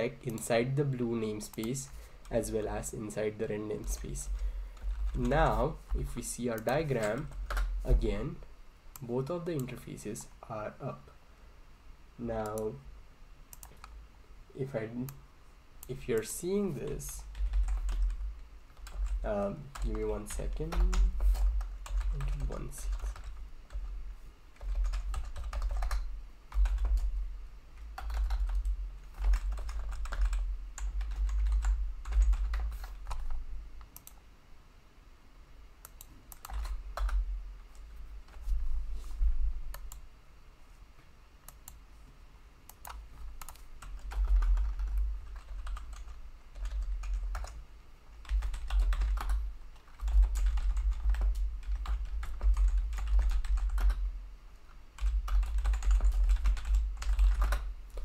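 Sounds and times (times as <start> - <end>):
typing on computer keyboard: 17.3 - 23.9, 24.6 - 27.1, 28.0 - 33.4, 35.9 - 37.2, 42.7 - 47.6, 48.2 - 54.0, 55.0 - 58.0.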